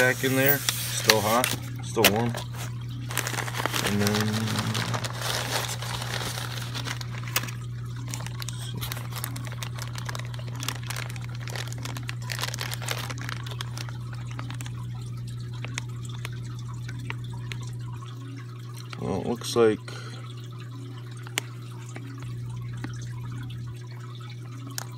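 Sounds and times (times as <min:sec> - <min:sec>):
plastic bags crinkling: 0:00.0 - 0:17.8
water sloshing in bags: 0:00.0 - 0:19.5, 0:20.3 - 0:24.9
small clicks and crackles: 0:03.1 - 0:17.8.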